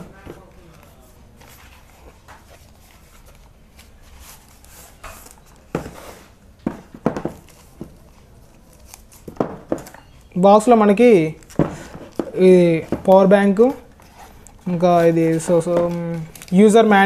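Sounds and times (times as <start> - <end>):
packaging rustling and crinkling: 7.2 - 10.0, 10.9 - 17.0.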